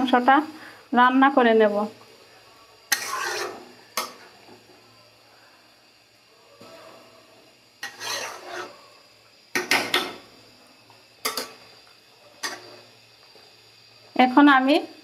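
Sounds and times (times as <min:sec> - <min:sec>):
spatula scraping a pan: 0:02.8 - 0:04.4, 0:07.8 - 0:08.9, 0:12.4 - 0:12.9.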